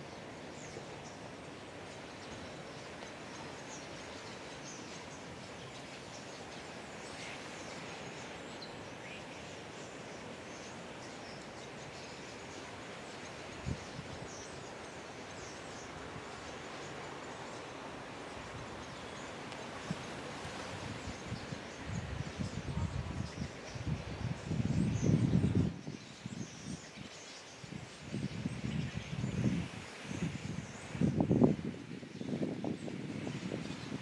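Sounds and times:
steady outdoor hiss: 0.0 - 34.0
starlings chirping: 1.9 - 30.0.

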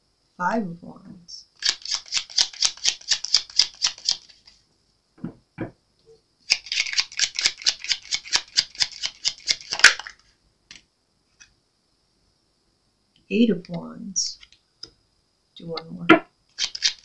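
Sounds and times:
cards shuffling slaps: 1.6 - 4.6, 6.5 - 10.2
soft thumps: 5.2 - 5.8.

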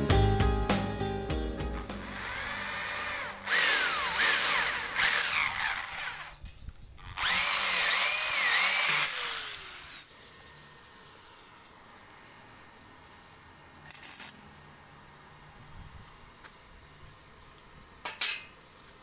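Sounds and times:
electric drill boring through metal: 1.8 - 6.4, 7.0 - 11.8.

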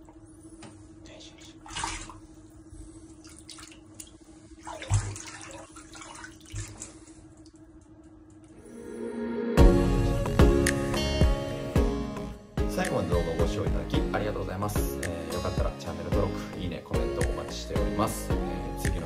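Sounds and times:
steady low hum: 0.0 - 19.0
bathwater sloshing and splashing: 1.5 - 7.7.

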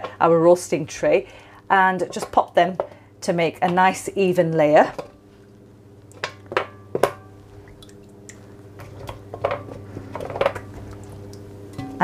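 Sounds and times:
quiet background music: 11.7 - 12.0.

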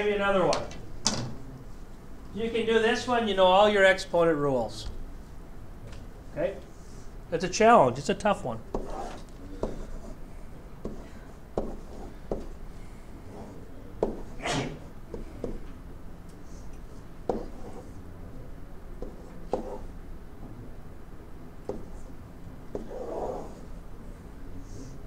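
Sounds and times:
pen tapping on whiteboard: 8.7 - 10.0, 10.8 - 11.0, 11.6 - 12.6, 14.0 - 14.3, 17.2 - 17.8, 19.0 - 19.8, 21.6 - 22.0.

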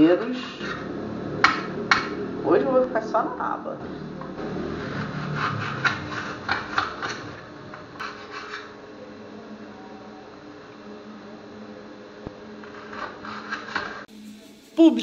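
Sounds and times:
knife cutting onion: 4.8 - 7.3.

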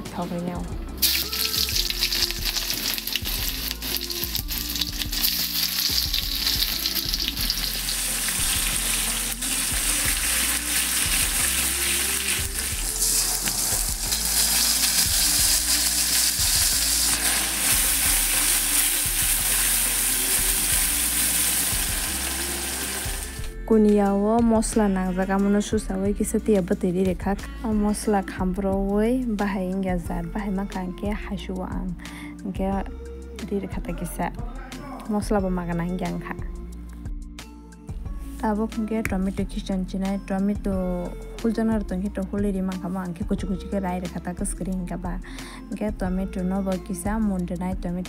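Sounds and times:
onions sizzling in hot oil: 1.0 - 23.4.

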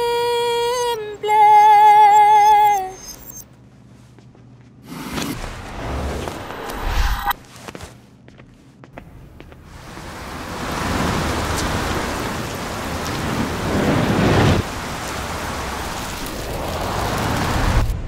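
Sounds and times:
rushing riser noise: 4.8 - 7.4
deep rumble: 5.2 - 7.4.

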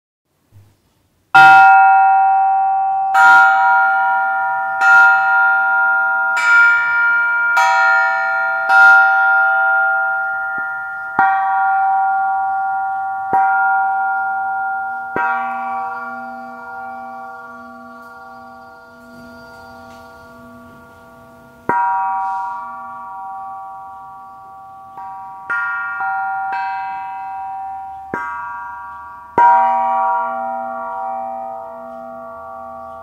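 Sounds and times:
metal gong struck with stick: 3.0 - 24.3.

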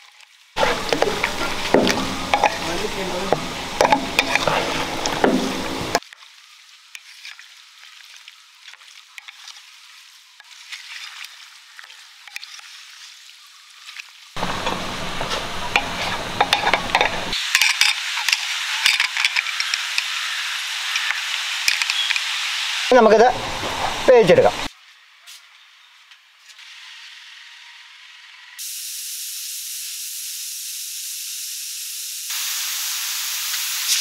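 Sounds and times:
spoon stirring wet meat in pot: 0.6 - 6.0, 14.4 - 17.9.

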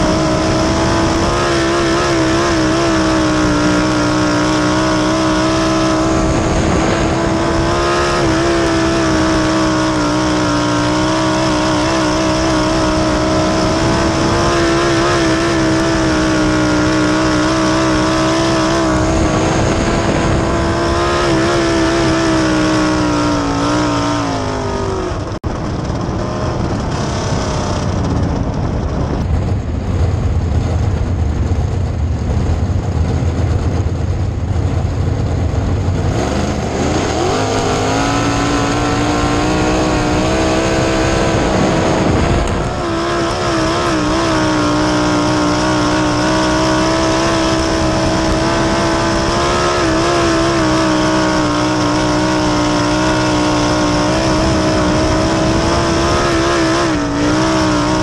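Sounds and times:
race car engine high note: 36.0 - 58.0.

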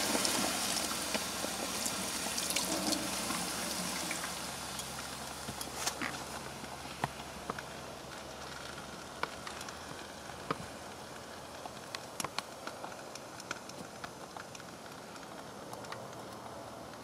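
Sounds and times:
low hiss: 0.0 - 17.0
fire crackling with pops: 4.0 - 17.0.

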